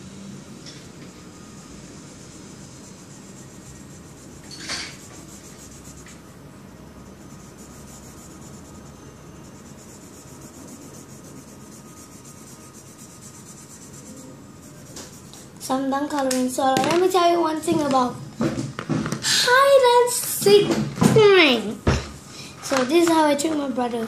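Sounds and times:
drawing tool scratching on paper: 1.5s - 6.4s, 7.0s - 15.6s.

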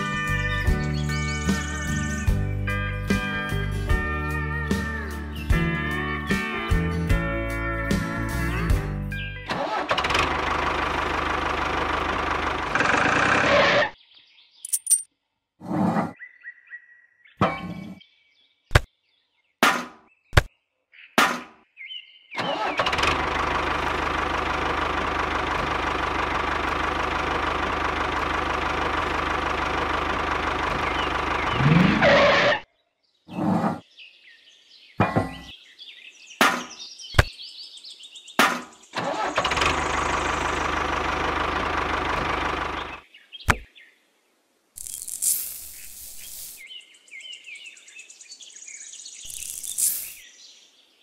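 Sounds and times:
tractor engine running: 9.4s - 13.9s, 22.4s - 32.5s, 38.9s - 43.6s.

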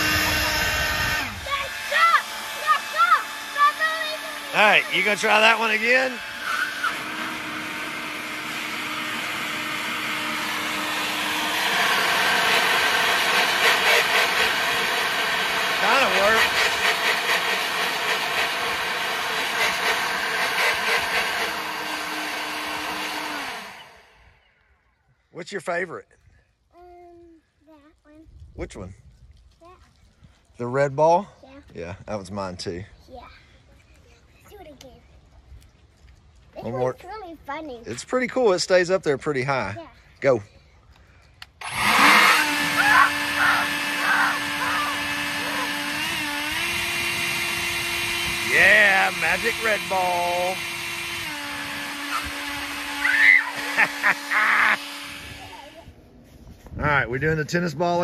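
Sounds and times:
leaf blower running: 0.0s - 24.4s, 41.4s - 56.0s.

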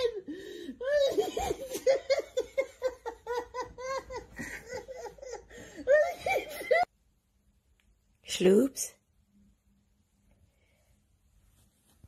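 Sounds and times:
person laughing hard: 0.0s - 6.9s.

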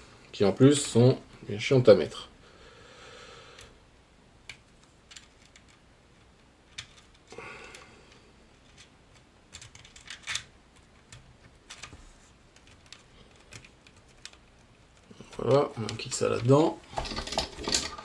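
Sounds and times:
small plastic parts clicking: 4.4s - 18.0s.

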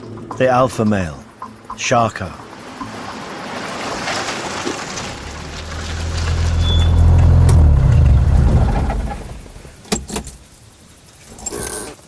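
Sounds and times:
loud low rumble: 5.0s - 9.7s.

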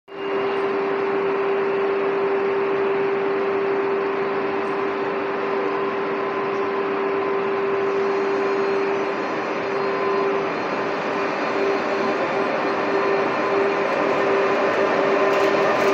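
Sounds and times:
electric train humming: 0.1s - 15.9s.

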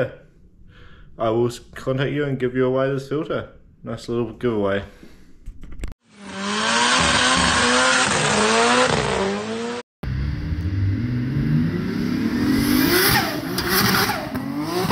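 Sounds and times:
car engine revving: 6.1s - 14.9s.

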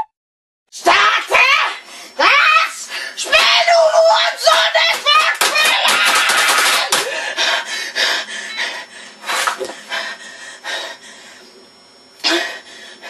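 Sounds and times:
boy panting: 6.9s - 11.4s, 12.2s - 13.0s.

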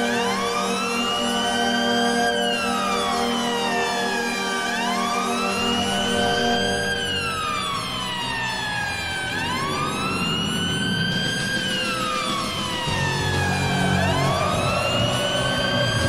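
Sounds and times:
goal siren wailing: 0.0s - 16.0s
music with low tones: 5.4s - 16.0s.

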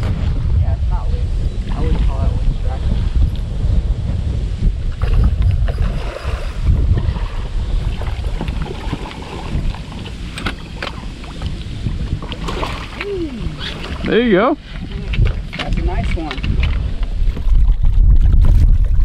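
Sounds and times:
wind buffeting microphone: 0.0s - 19.0s
fish splashing in water: 5.0s - 10.3s, 12.1s - 14.2s.

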